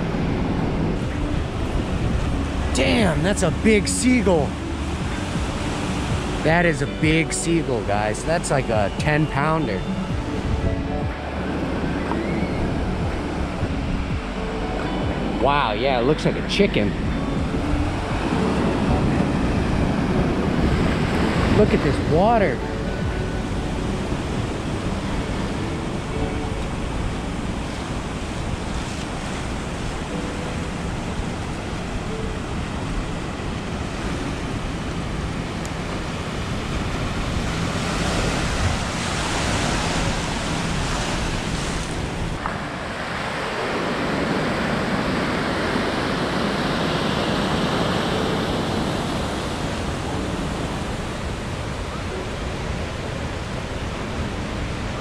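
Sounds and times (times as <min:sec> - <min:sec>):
wind on microphone: 0:00.0 - 0:07.2, 0:07.9 - 0:55.0
ocean surf breaking: 0:00.0 - 0:55.0.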